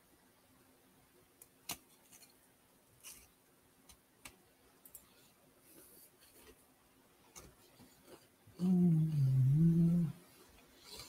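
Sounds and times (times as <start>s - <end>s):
computer mouse clicks: 3.9s - 5.2s.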